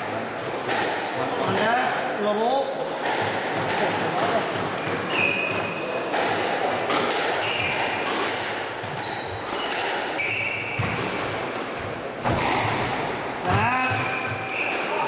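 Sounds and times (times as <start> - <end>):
shoes squeaking on wooden floor: 4.8 - 5.9, 7.4 - 8.0, 8.8 - 11.2, 13.5 - 15.0.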